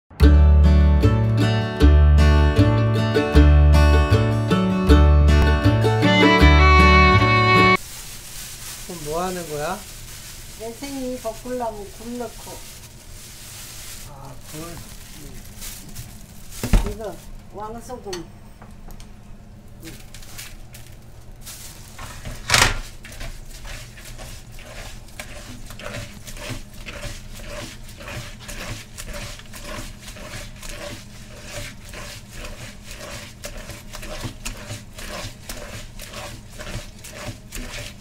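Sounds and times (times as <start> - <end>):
wet squishing and scraping: 19.8 - 38.0.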